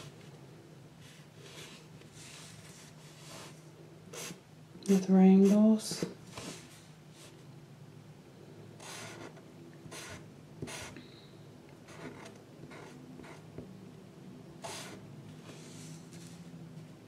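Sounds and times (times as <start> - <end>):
drawing tool scratching paper: 1.4 - 4.4, 8.8 - 11.0, 14.6 - 15.0.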